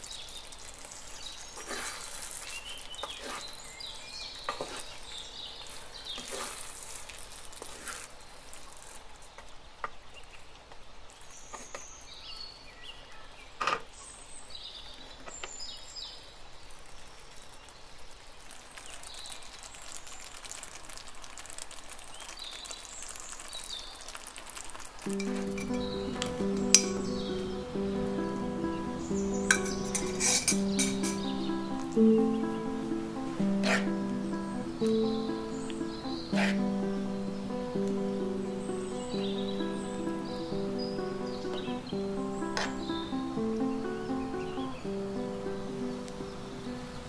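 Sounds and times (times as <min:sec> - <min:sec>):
background music: 0:25.1 - 0:47.0
sauce simmering and sizzling: 0:25.1 - 0:47.0.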